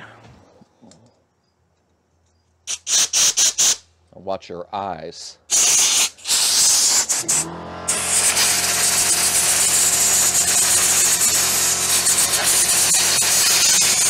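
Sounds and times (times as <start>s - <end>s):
air blow gun hissing: 2.7s - 3.8s, 5.5s - 14.0s
air compressor humming: 5.5s - 14.0s.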